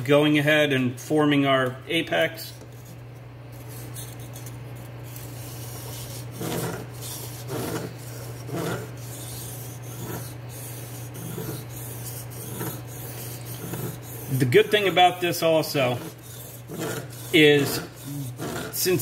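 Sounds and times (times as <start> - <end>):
knife scraping on sharpening stone: 3.6 - 15.0, 15.9 - 19.0.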